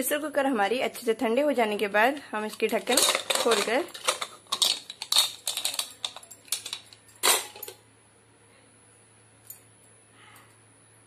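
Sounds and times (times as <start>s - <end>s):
metal lid clicking and scraping: 2.6s - 7.7s
metal lid clattering: 2.8s - 7.7s.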